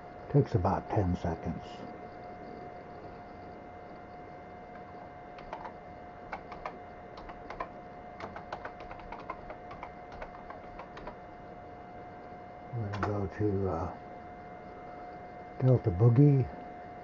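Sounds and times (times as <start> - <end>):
steady faint tone: 0.0 - 17.0
computer keyboard typing: 5.4 - 11.2, 12.8 - 13.2.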